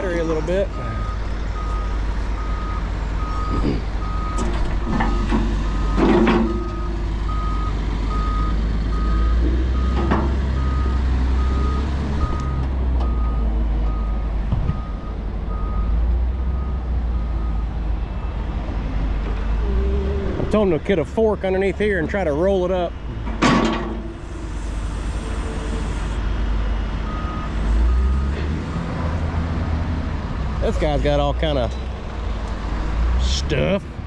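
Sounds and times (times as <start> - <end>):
diesel engine rumble: 0.0 - 34.0
metal clank: 4.4 - 6.8, 23.2 - 24.2.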